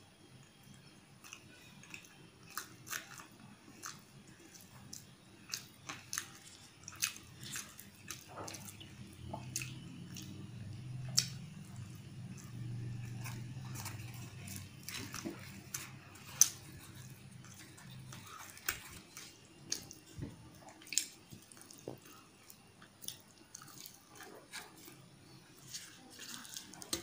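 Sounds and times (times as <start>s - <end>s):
chewing and mouth smacks: 1.2s - 25.0s, 25.6s - 27.0s
low hum: 8.5s - 18.5s.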